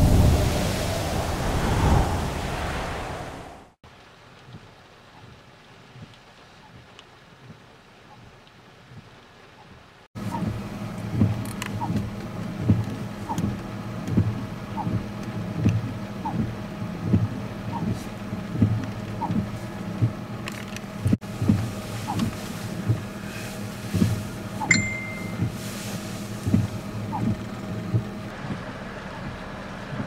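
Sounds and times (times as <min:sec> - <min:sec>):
low engine hum: 0:00.0 - 0:03.8, 0:10.2 - 0:30.0
short high beep: 0:24.7 - 0:25.5.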